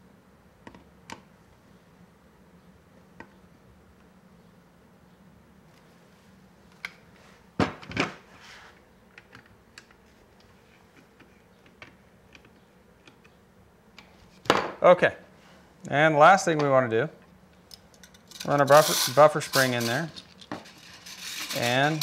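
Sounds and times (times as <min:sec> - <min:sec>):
knocks on workbench: 0:07.6 - 0:08.2, 0:14.5 - 0:14.8.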